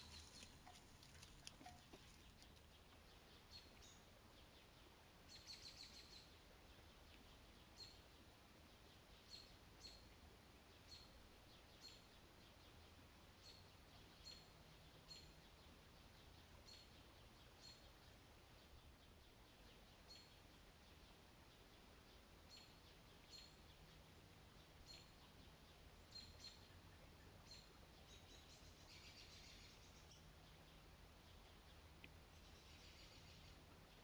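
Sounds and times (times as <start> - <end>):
faint steady hiss: 0.0 - 34.0.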